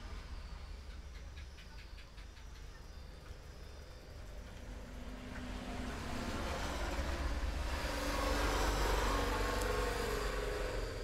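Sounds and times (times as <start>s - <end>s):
vehicle passing by: 4.3s - 11.0s.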